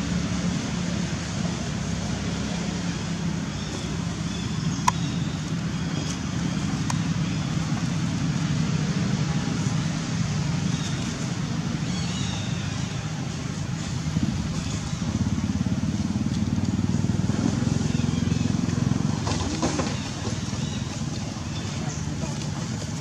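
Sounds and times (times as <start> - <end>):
vehicle engine humming: 0.0 - 23.0.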